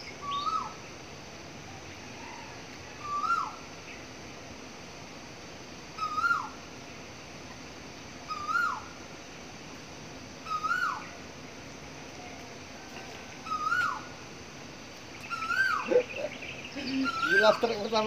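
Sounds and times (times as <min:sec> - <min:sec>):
steady background hiss: 0:00.0 - 0:18.0
animal call: 0:10.4 - 0:11.1, 0:12.2 - 0:14.1, 0:15.2 - 0:17.6.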